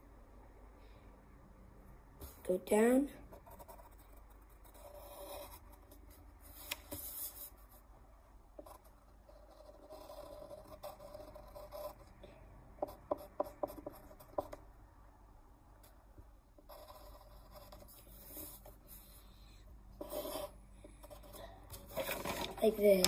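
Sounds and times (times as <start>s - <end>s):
drawing tool scratching paper: 8.6s - 12.1s, 20.0s - 22.5s.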